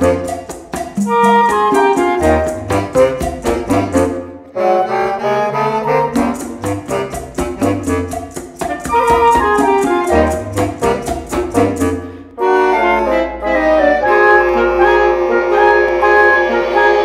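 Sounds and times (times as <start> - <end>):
congas and hand percussion: 0.0 - 4.4, 5.9 - 12.3
woodwind ensemble playing: 0.0 - 17.0.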